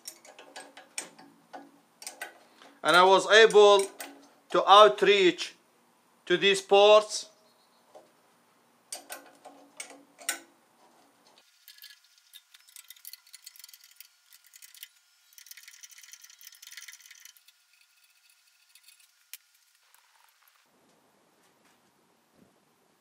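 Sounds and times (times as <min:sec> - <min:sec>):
soft rustling: 0:19.7 - 0:22.6.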